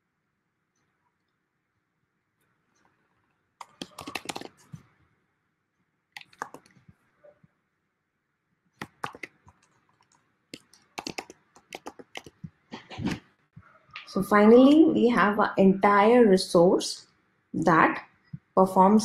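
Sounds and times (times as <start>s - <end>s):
typing on a computer keyboard: 3.6s - 4.7s, 6.2s - 6.8s, 8.8s - 12.5s.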